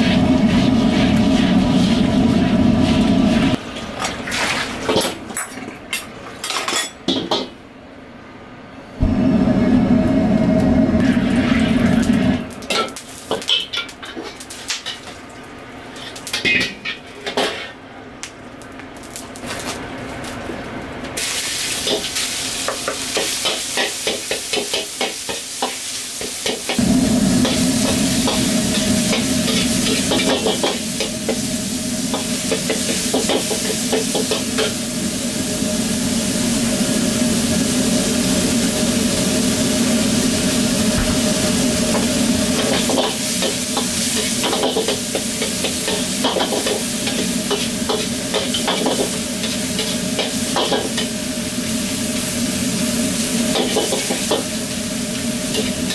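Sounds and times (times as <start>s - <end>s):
gas burner roar: 0.0s - 3.6s, 8.8s - 55.9s
meat sizzling in hot oil: 21.2s - 55.9s.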